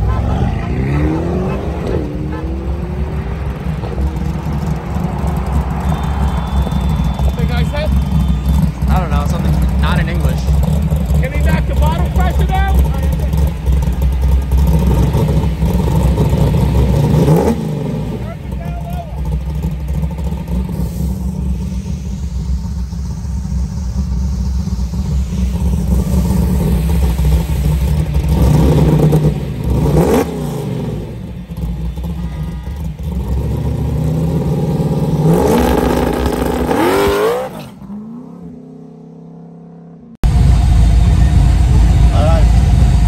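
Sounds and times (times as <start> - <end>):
drag car engine revving and accelerating: 0.0 - 43.0.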